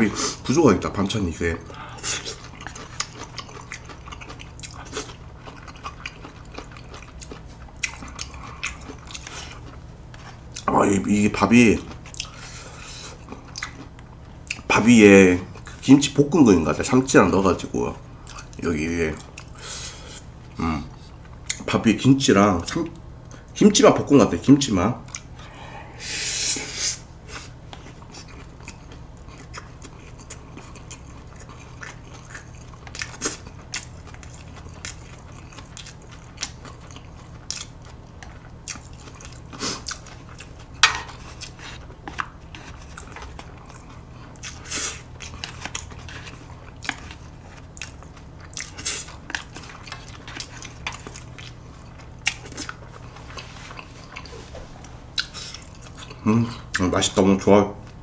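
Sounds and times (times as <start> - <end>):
faint low hum: 0.0 - 58.0
chewing food: 1.0 - 14.7, 18.2 - 19.6, 25.0 - 25.4, 27.3 - 57.2.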